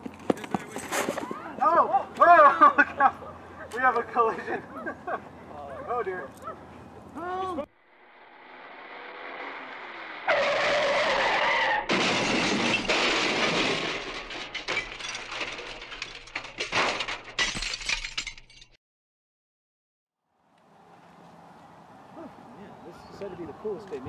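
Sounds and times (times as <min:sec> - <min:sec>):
rising rush: 0:07.8 - 0:11.8
tyres screeching: 0:09.4 - 0:13.8
debris clattering: 0:10.3 - 0:18.8
glass shattering: 0:10.3 - 0:18.8.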